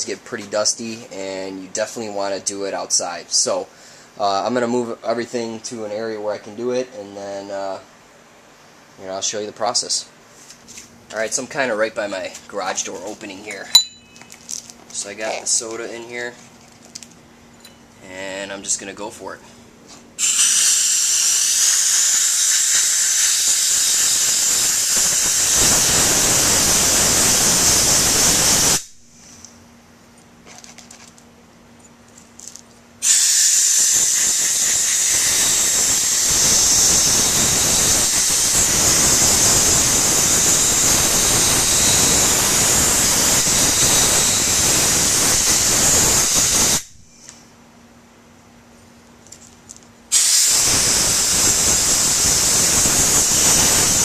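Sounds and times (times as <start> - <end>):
air blow gun hissing: 20.2 - 29.0, 33.0 - 47.0, 50.1 - 54.0.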